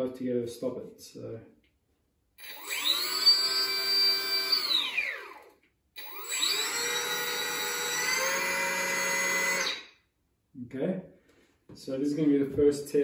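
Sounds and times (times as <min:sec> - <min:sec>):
electric motor whining: 0:02.4 - 0:09.8.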